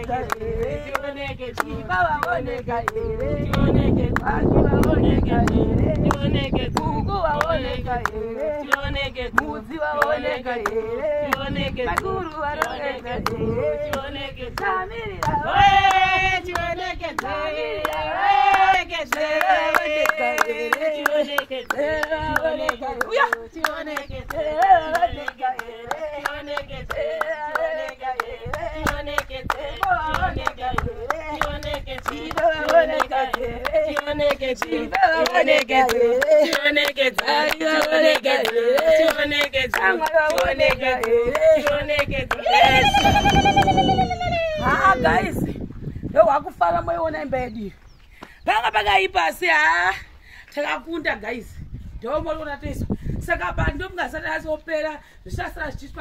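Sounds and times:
hand clapping: 0:00.0 - 0:08.8, 0:09.4 - 0:44.0
women singing together: 0:00.0 - 0:45.7.

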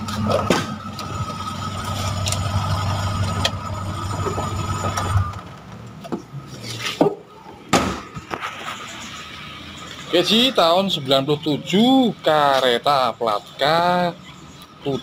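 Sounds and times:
engine idling and switching off: 0:00.0 - 0:06.2.

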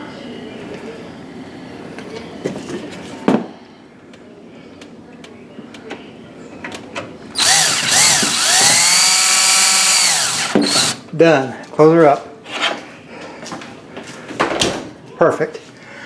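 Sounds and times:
cordless drill motor whining: 0:07.4 - 0:11.0.

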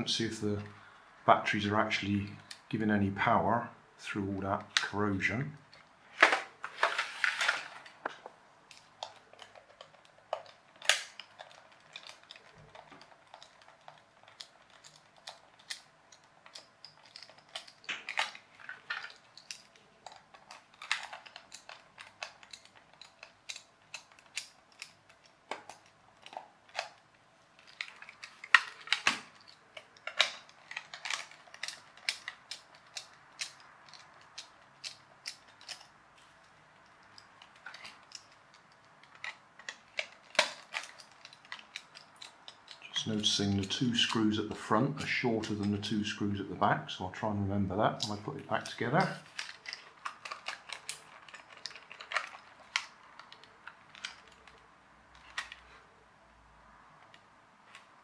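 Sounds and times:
screwdriver clicking on plastic: 0:08.7 - 0:27.0.

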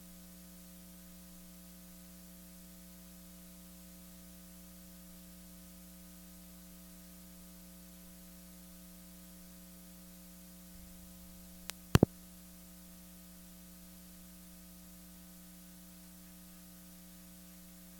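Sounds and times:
faint click: 0:11.6 - 0:12.1.

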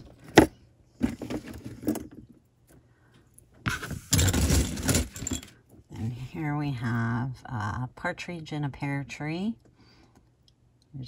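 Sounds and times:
jewelry rustling and clattering: 0:00.0 - 0:06.0.

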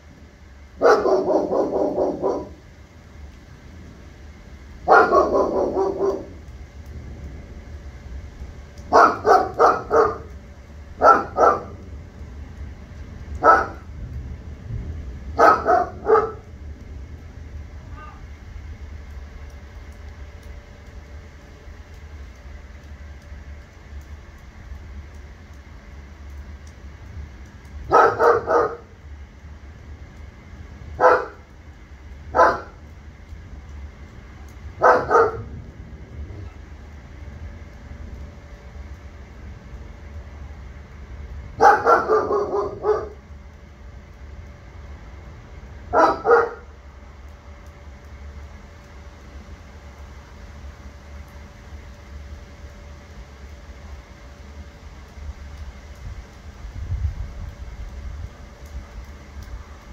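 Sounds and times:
steady low rumble: 0:00.0 - 0:59.9
dog barking: 0:00.8 - 0:02.6, 0:04.9 - 0:06.4, 0:08.9 - 0:10.3, 0:11.0 - 0:11.8, 0:13.4 - 0:13.9, 0:15.4 - 0:16.4, 0:27.9 - 0:28.9, 0:31.0 - 0:31.4, 0:32.3 - 0:32.8, 0:34.8 - 0:35.5, 0:41.6 - 0:43.2, 0:45.9 - 0:46.7.

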